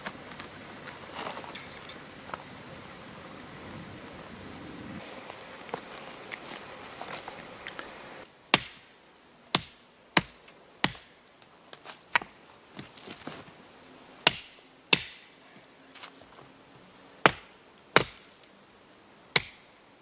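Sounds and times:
handling rustle: 0.0 - 2.5, 4.5 - 8.0, 11.3 - 13.6.

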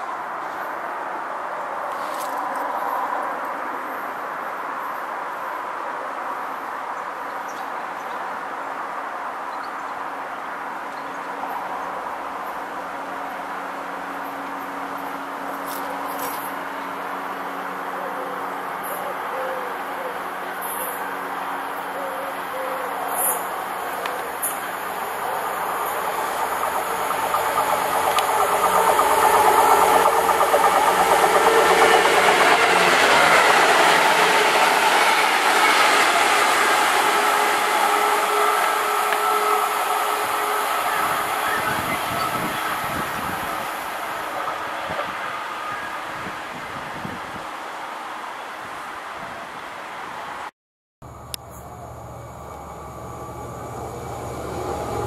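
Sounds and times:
locomotive engine hum: 20.0 - 45.7, 51.1 - 55.0
wheels on rails: 23.2 - 46.3.

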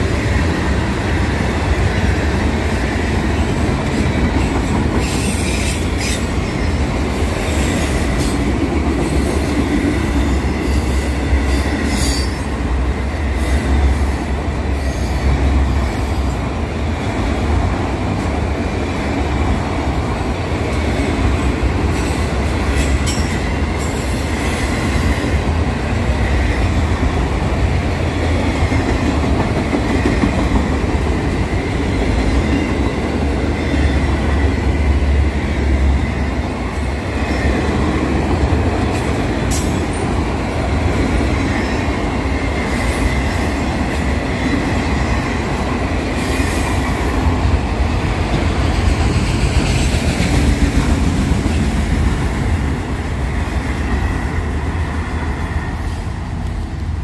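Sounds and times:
train wheels rumbling on track: 0.0 - 57.0
rail joint clicks: 1.3 - 10.2, 19.5 - 26.0, 36.6 - 52.1.

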